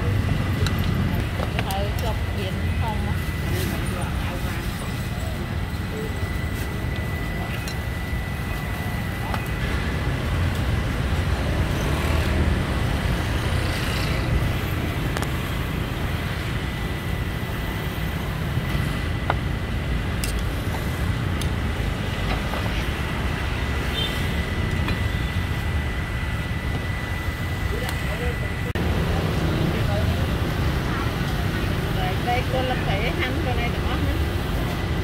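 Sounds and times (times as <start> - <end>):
low rumble of passing traffic: 0.0 - 35.0
thin high whine: 1.9 - 28.9.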